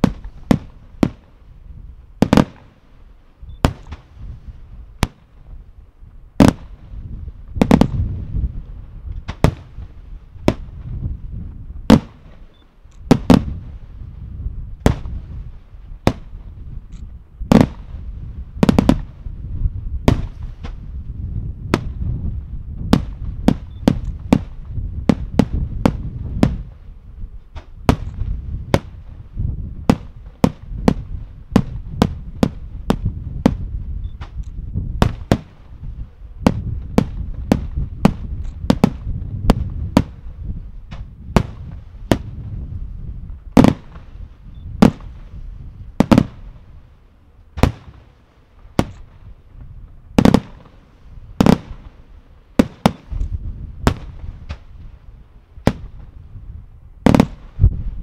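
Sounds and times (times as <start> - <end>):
heavy firework booms: 0.0 - 2.7, 6.4 - 8.6, 9.2 - 12.4, 13.1 - 16.8, 17.4 - 26.8, 27.5 - 46.7, 47.6 - 48.1, 50.2 - 52.0, 52.6 - 54.8, 55.6 - 56.2, 57.0 - 58.0
continuous low rumble: 0.0 - 58.0
firework shells bursting: 3.6 - 4.2, 29.8 - 35.7, 47.6 - 48.1, 48.7 - 49.2, 52.6 - 54.7.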